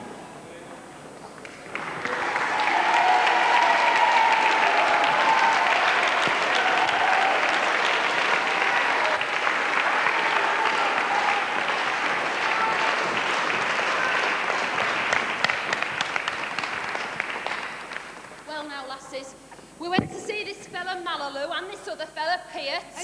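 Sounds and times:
crowd applause: 1.4 - 18.4.

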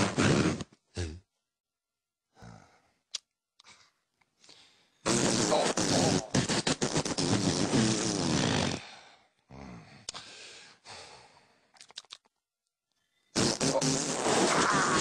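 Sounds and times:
soft grunts: 1.0 - 1.2
breathy cartoon animal sound: 2.3 - 2.9.

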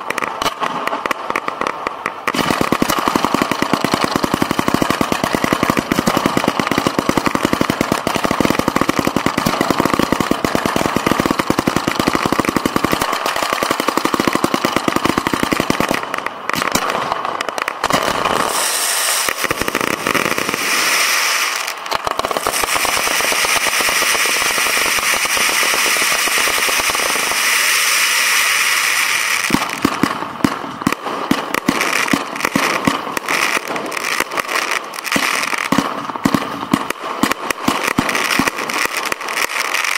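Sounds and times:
fireworks firing rapid shots: 0.0 - 39.9
fireworks hissing crackle: 0.0 - 39.9.

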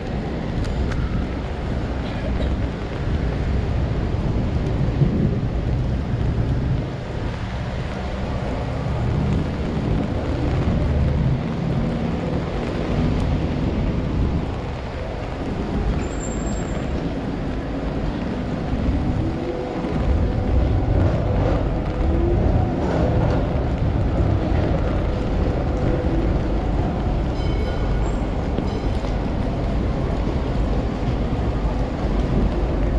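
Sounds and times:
traffic rumbling past: 0.0 - 32.9.

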